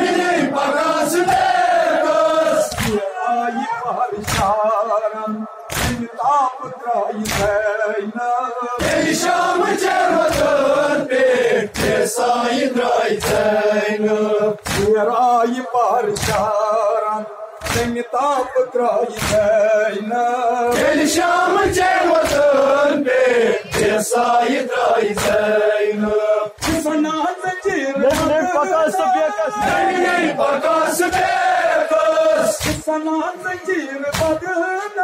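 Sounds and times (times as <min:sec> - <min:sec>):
men chanting in unison: 0:00.0 - 0:35.0
chest-beating slaps: 0:02.7 - 0:03.1, 0:04.2 - 0:04.6, 0:05.7 - 0:06.1, 0:07.2 - 0:07.6, 0:10.2 - 0:10.6, 0:11.7 - 0:12.1, 0:13.2 - 0:13.5, 0:14.6 - 0:15.0, 0:16.2 - 0:16.6, 0:17.6 - 0:18.0, 0:19.2 - 0:19.6, 0:20.7 - 0:22.6, 0:23.6 - 0:24.0, 0:25.1 - 0:25.5, 0:26.6 - 0:27.0, 0:28.0 - 0:28.4, 0:32.5 - 0:32.9, 0:34.1 - 0:34.4.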